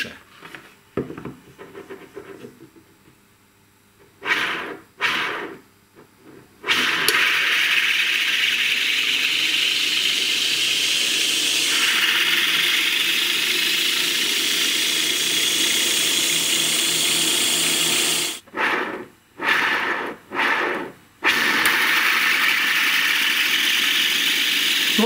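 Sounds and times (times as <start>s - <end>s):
ball bearing motor whirring: 4.2s - 5.6s, 6.6s - 25.0s.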